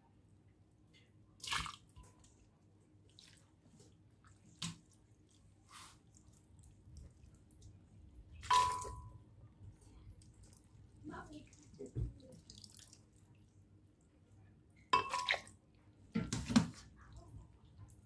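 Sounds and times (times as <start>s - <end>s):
glass jar clink: 8.5s - 9.2s, 15.0s - 15.4s.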